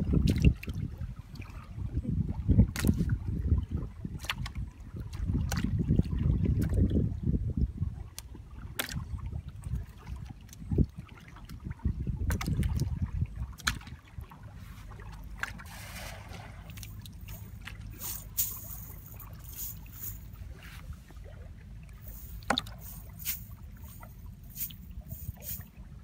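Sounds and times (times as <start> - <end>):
wind rumbling on microphone: 0.0 - 26.0
squelching in soft mud: 8.2 - 25.8.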